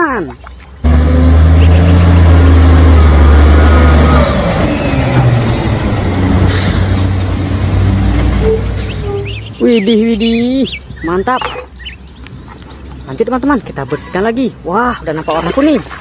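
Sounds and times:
garbage truck engine passing: 0.8s - 9.6s.

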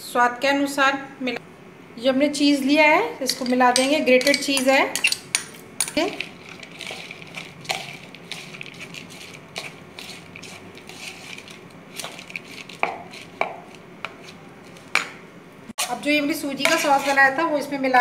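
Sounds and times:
spoon scraping glass bowl: 3.3s - 14.8s, 15.8s - 17.4s
mixing in plastic bowl: 3.3s - 15.0s, 15.8s - 17.5s.

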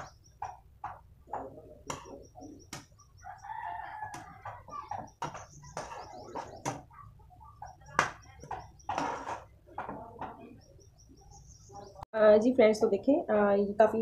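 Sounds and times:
metal spoon scraping a steel pan: 8.4s - 9.6s.

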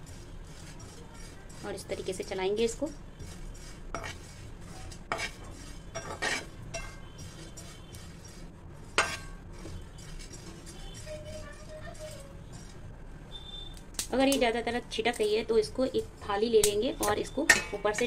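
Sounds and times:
spoon scraping a pan: 0.0s - 12.9s, 15.0s - 18.0s
spoon knocking on pan: 17.4s - 18.0s.

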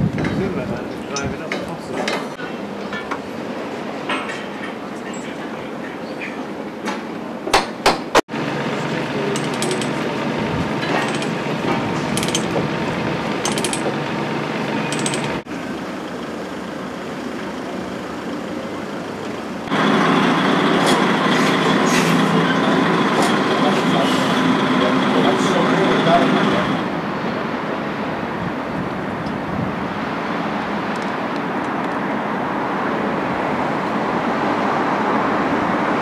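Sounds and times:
lorry diesel engine: 8.3s - 28.2s
metal clanks: 9.3s - 10.0s, 10.8s - 12.7s, 13.4s - 14.0s, 14.8s - 15.4s
chain clinking: 12.2s - 12.6s, 13.4s - 13.9s.

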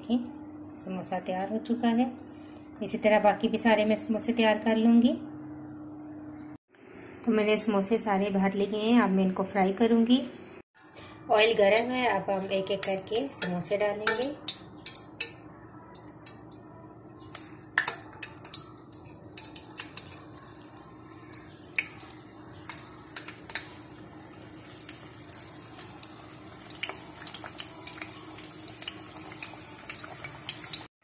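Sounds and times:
deep-frying sizzle with pops: 10.8s - 30.9s.

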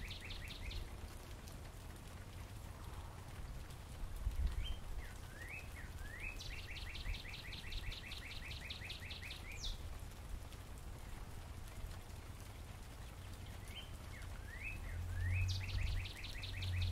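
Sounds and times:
bird singing slurred whistles: 14.5s - 16.9s.

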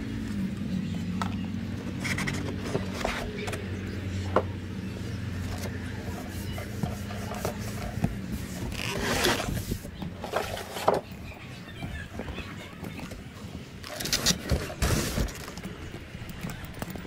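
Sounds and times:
scraping rustle: 1.9s - 3.6s, 5.3s - 16.7s
cardboard packaging rustling: 5.6s - 11.0s, 13.8s - 15.8s.

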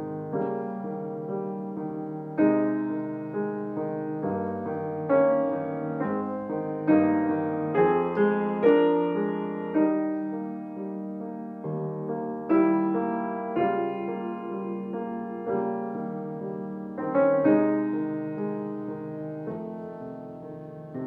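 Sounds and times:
slow gentle piano: 0.0s - 21.0s.

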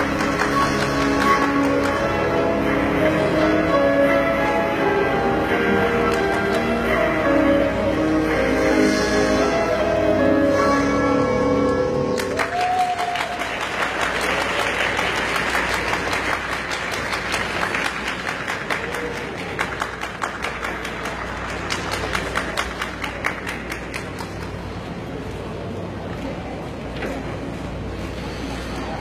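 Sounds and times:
audience clapping: 0.0s - 2.1s, 6.1s - 6.7s, 12.2s - 24.9s
audience cheering: 12.2s - 15.0s.

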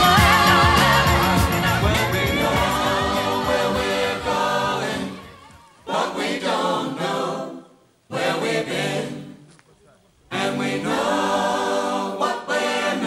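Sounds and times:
background music with singing: 0.0s - 7.6s
choral singing: 0.0s - 9.5s, 10.3s - 13.0s.

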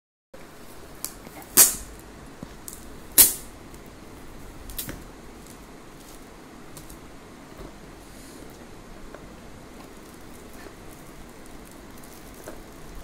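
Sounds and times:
foil gift wrap crinkling: 9.8s - 13.0s
sharp wrapping crackles: 9.8s - 13.0s.

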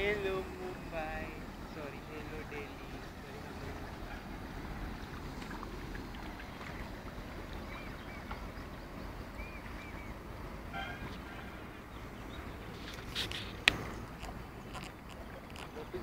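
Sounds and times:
river flowing: 0.0s - 16.0s
wind: 0.0s - 16.0s.

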